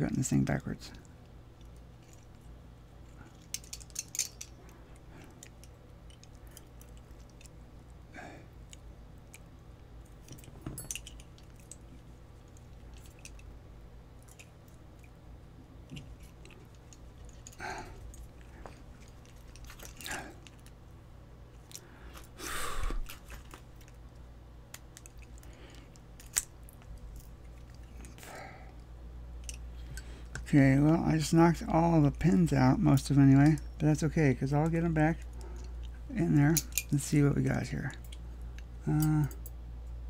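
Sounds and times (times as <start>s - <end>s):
lock pins rattling out: 3.0s - 7.6s, 8.7s - 13.5s, 15.8s - 20.8s, 24.7s - 28.4s, 31.5s - 39.6s.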